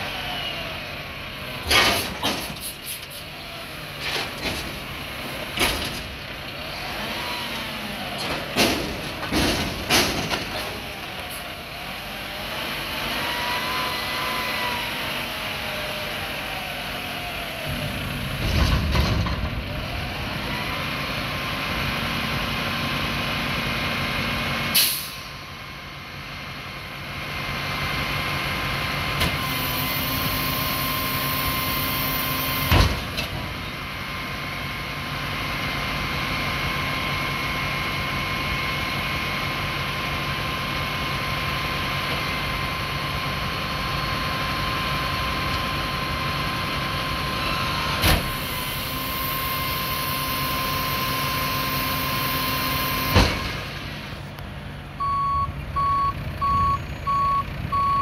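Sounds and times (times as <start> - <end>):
truck engine revving: 3.2 - 24.6
air brake hiss: 24.7 - 25.4.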